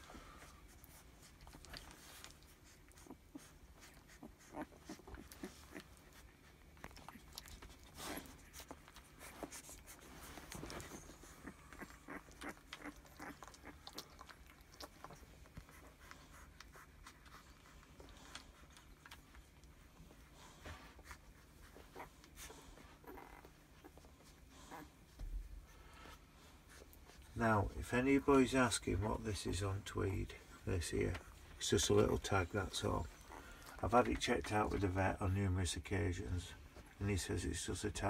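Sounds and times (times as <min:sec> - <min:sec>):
puppies rustling: 0:00.0 - 0:38.0
puppy mouth sounds: 0:01.0 - 0:19.7.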